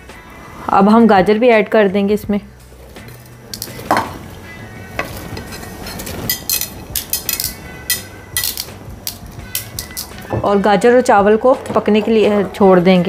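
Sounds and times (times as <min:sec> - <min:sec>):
pot bubbling: 0:02.7 - 0:13.0
scraping and clinking on a plate: 0:05.0 - 0:10.2.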